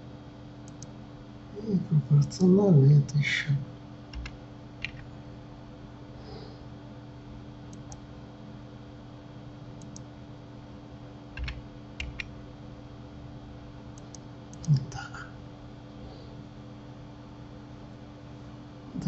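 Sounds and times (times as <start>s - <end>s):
steady low hum: 0.0s - 19.0s
mouse clicks: 0.6s - 0.9s, 9.8s - 10.1s
keyboard keys clicking: 4.1s - 5.1s, 11.4s - 12.3s.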